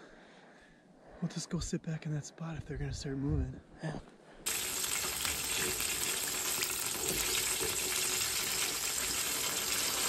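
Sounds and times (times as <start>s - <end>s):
deep-frying sizzling in oil: 4.5s - 10.0s.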